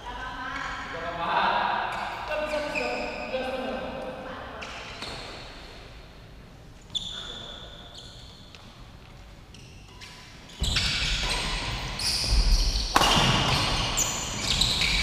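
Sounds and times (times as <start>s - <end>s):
shoes squeaking on court floor: 4.6s - 5.8s, 6.8s - 15.0s.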